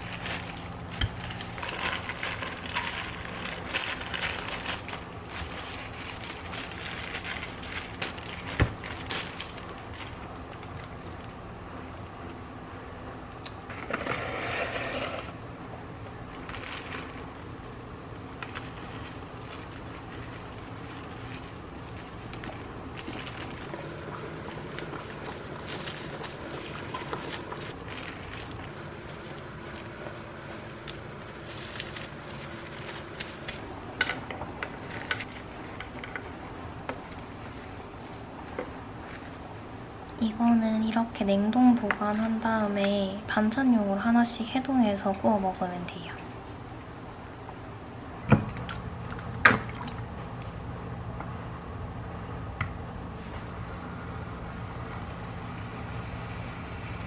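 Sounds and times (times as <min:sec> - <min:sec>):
steady low hum: 0:00.0 - 0:57.0
food preparation scraping: 0:13.7 - 0:15.4
rustling: 0:16.3 - 0:39.8.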